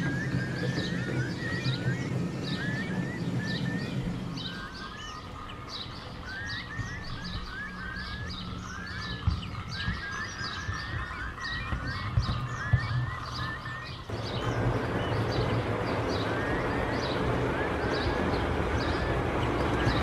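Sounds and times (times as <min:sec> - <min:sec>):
model train rumbling: 0:00.0 - 0:07.9, 0:14.1 - 0:20.0
small birds chirping: 0:00.0 - 0:20.0.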